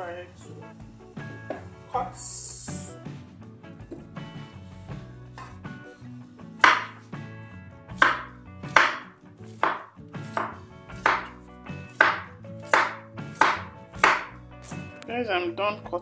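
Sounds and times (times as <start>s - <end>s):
knife chopping on wooden board: 5.3s - 5.7s, 6.6s - 7.1s, 7.9s - 14.4s.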